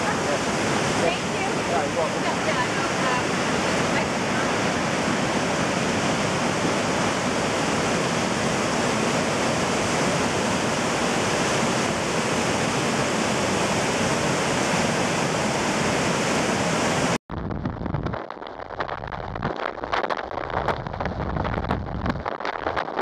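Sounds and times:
river rapids rushing: 0.0 - 17.2.

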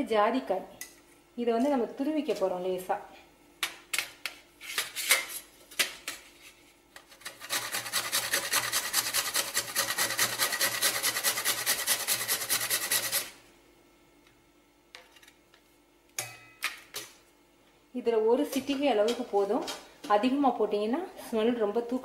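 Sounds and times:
nutmeg grated on metal grater: 7.2 - 13.4.

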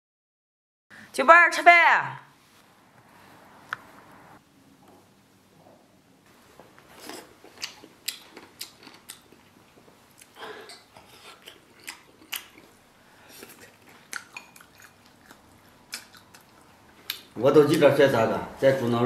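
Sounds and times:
people chewing and smacking lips: 6.3 - 17.4.

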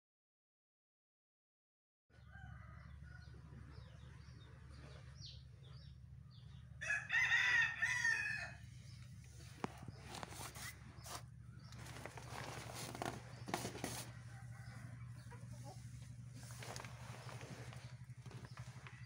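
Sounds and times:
rooster crowing: 2.1 - 3.6, 6.8 - 8.7, 13.9 - 15.8
small birds chirping: 2.2 - 19.0
low hum: 3.0 - 19.0.

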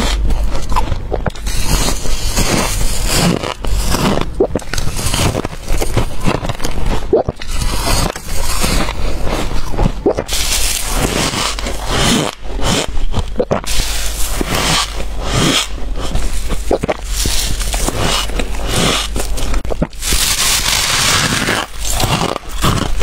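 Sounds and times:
crunching bites and chews: 0.0 - 23.0.

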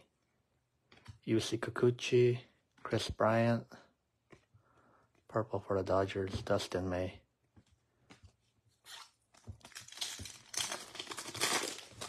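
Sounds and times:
foil wrapper crinkling and tearing: 8.9 - 12.0.

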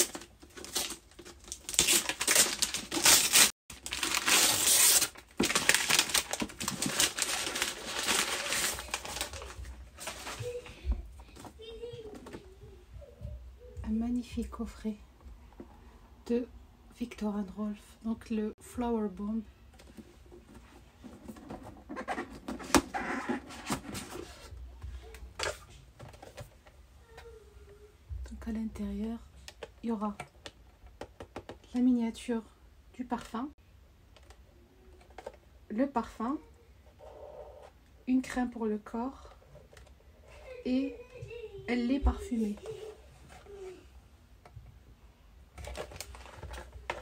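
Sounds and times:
packaging rustling and scraping: 0.0 - 12.3, 19.8 - 24.6, 45.6 - 47.0
paper and cardboard crinkling: 0.0 - 12.4, 45.6 - 47.0.

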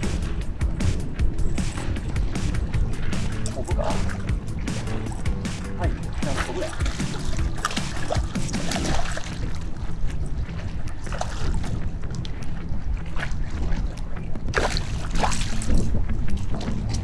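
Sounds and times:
low rumble: 0.0 - 17.0
fish splashing at water surface: 1.7 - 9.7, 14.5 - 15.8.

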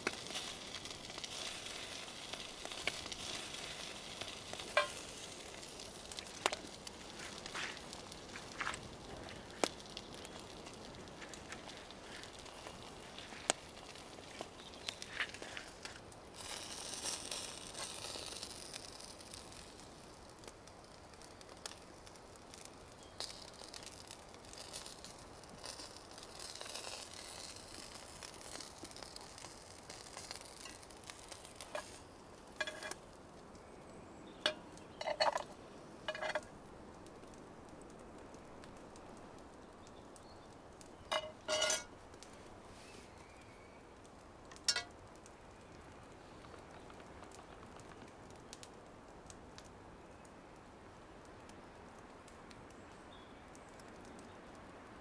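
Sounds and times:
food sizzling in a frying pan: 0.0 - 8.7, 16.4 - 20.4, 23.0 - 33.0, 34.4 - 36.5
crackling campfire: 0.0 - 55.0
cutlery clinking on metal pan: 4.7 - 5.0, 32.6 - 33.0, 41.1 - 41.9, 44.7 - 44.9.

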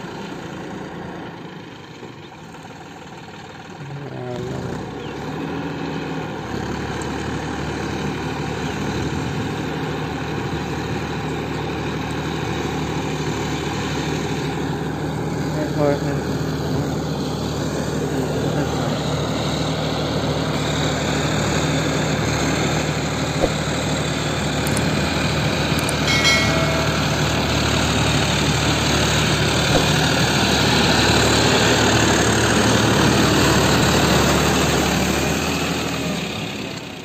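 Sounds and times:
rotavator working: 0.0 - 37.0
tractor diesel engine running: 0.0 - 37.0
brief ringing tone: 26.0 - 28.5.

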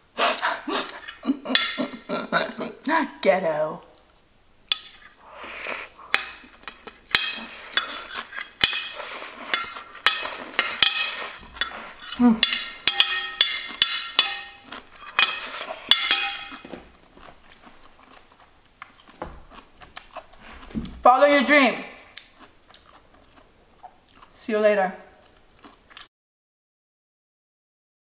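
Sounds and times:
slurping: 5.2 - 6.1, 7.3 - 12.3
metal spoon scraping ceramic plate: 6.1 - 16.7.

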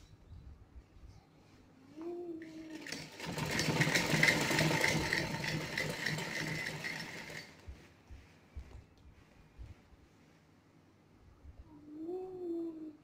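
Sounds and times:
sewing machine clatter: 2.4 - 7.8.

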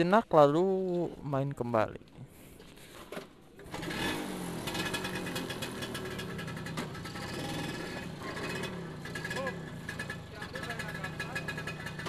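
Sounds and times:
scooter engine running: 3.6 - 12.0.

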